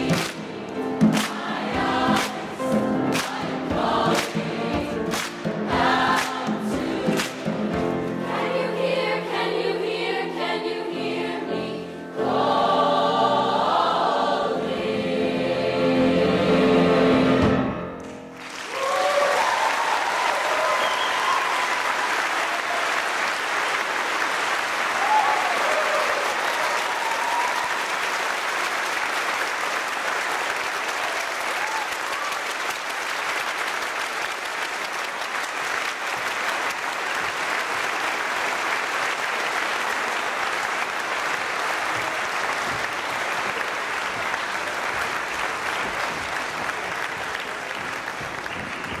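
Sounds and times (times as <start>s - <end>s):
audience applauding: 0.0s - 8.1s, 18.0s - 49.0s.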